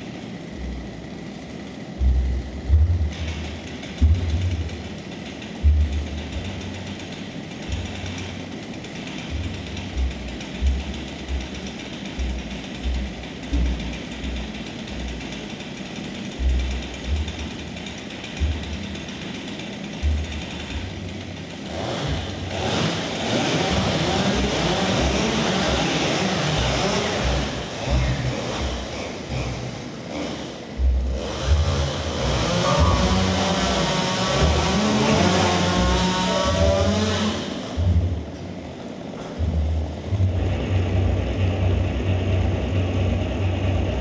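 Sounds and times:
chainsaws idling: 0:00.0 - 0:44.0
low thumps: 0:02.0 - 0:04.9, 0:39.4 - 0:40.9.

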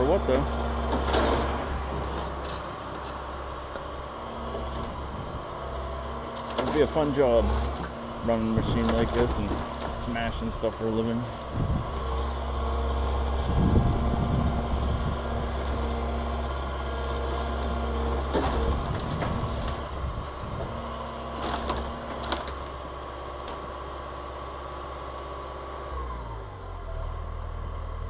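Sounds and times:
excavator diesel engine running: 0:00.0 - 0:28.0
building cracking and crunching: 0:05.8 - 0:11.3, 0:14.7 - 0:24.7.

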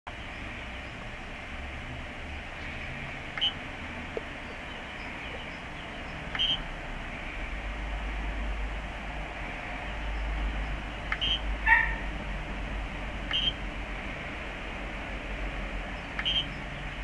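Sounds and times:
steady low hum: 0:00.1 - 0:17.0.

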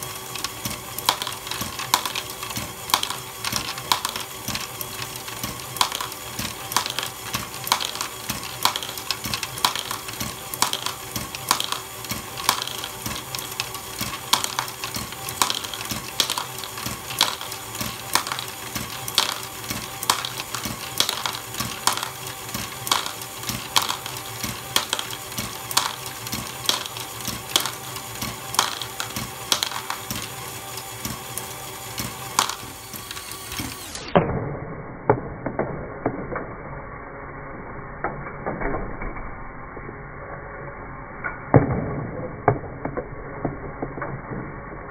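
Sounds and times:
electric motor and gears humming: 0:00.0 - 0:44.9
plastic balls clacking: 0:00.3 - 0:34.2.

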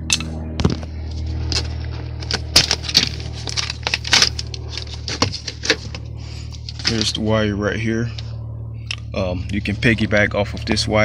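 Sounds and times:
steady low hum: 0:00.0 - 0:11.0
handling clicks and rustles: 0:00.1 - 0:07.4.

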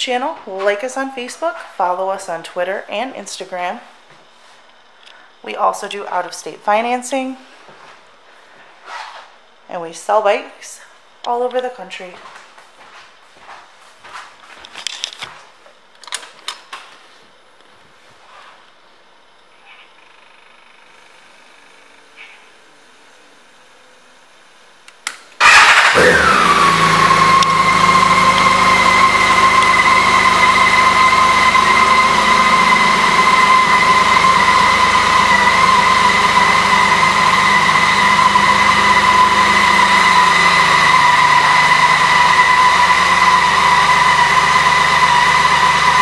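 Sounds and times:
motorcycle engine starting and idling: 0:25.3 - 0:46.0.

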